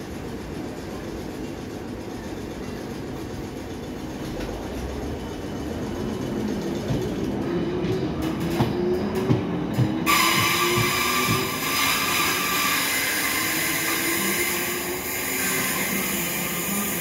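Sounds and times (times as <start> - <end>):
train wheels clicking over rail joints: 0.1 - 17.0.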